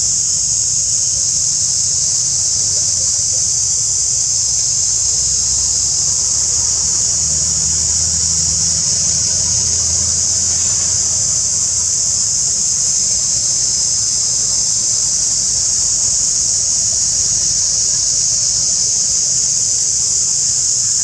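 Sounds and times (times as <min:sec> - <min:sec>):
high-pitched insect drone: 0:00.0 - 0:21.0.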